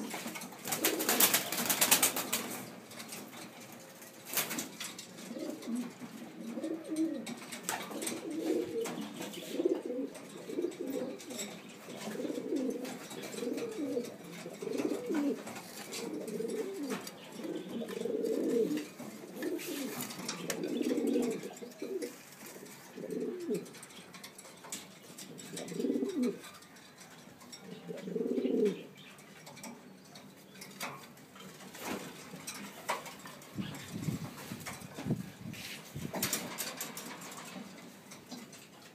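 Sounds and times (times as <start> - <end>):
pigeons cooing: 0.0 - 2.7, 4.3 - 24.2, 24.9 - 29.6.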